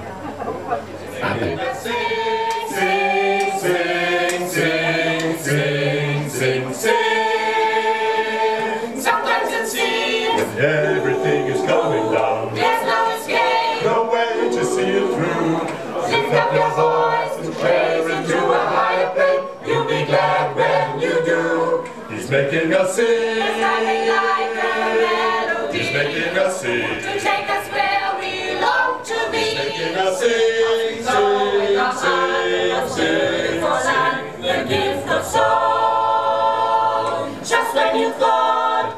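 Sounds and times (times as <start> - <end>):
mixed choir singing a cappella: 1.1 - 38.9.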